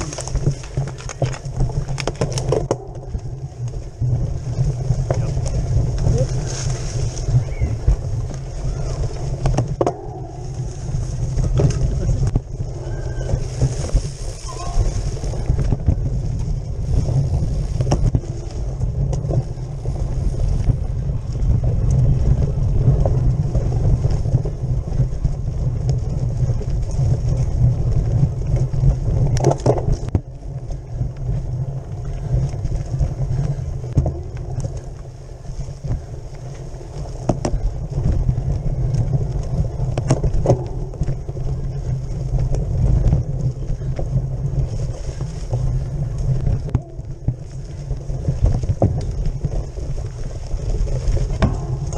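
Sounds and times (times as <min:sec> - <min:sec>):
low rumble of bike riding: 0:00.0 - 0:51.9
wind buffeting: 0:00.0 - 0:51.9
knocks and rattles: 0:51.2 - 0:51.9.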